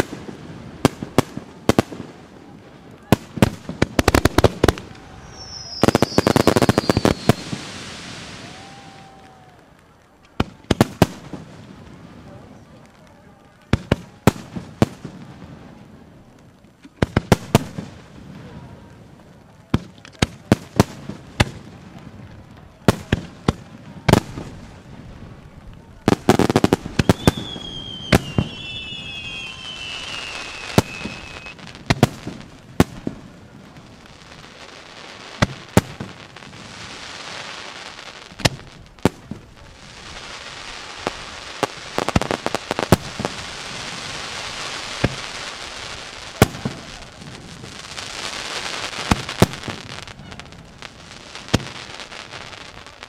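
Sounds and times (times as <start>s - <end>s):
firework hiss: 0.0s - 9.6s, 22.9s - 53.0s.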